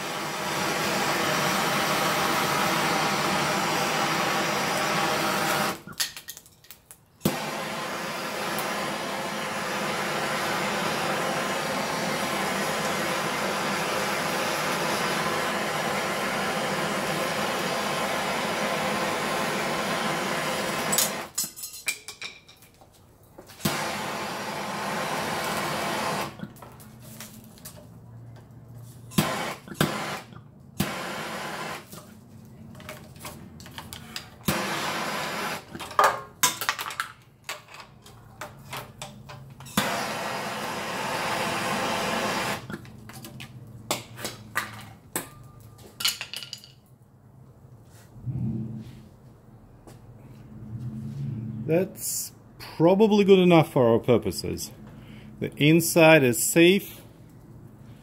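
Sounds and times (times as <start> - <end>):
hot-air gun blowing: 0.0 - 6.0, 7.2 - 21.4, 23.6 - 26.6, 29.2 - 32.0, 34.4 - 35.9, 39.8 - 42.8.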